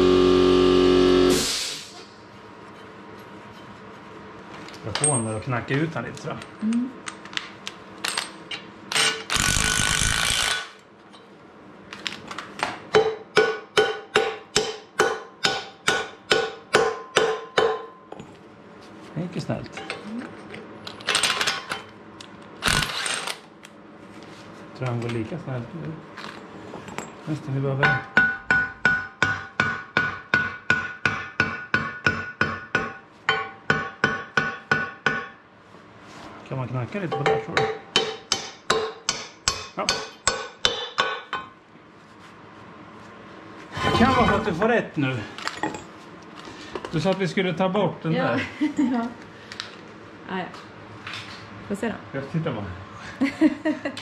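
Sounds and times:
hammer striking metal press: 12.9s - 18.0s, 27.8s - 35.4s, 37.1s - 41.5s.

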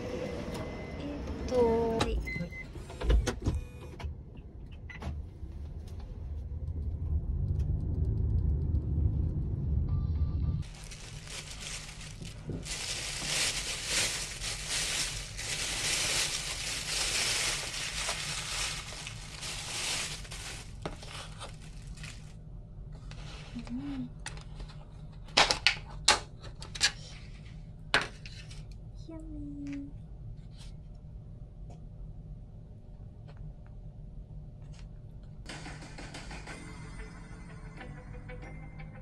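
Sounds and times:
plastic bag rustling: 10.6s - 22.4s.

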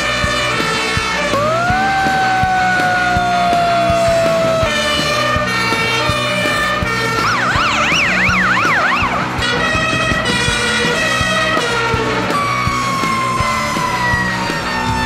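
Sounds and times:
siren yelp: 0.0s - 15.0s
steady siren and horn tones: 0.0s - 15.0s.

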